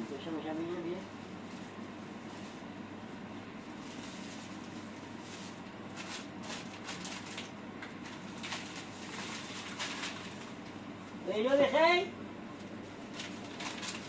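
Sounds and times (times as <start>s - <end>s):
steady low hum: 0.0s - 14.0s
plastic bags rustling: 3.5s - 11.2s, 12.9s - 14.0s.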